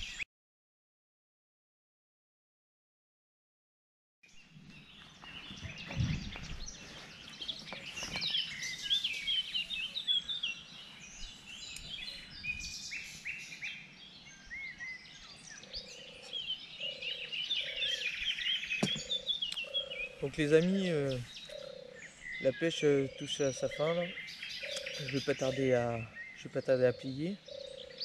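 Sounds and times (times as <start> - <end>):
songbirds singing: 0.0 - 0.2, 4.3 - 28.0
low thud: 5.7 - 6.5, 18.8 - 19.2.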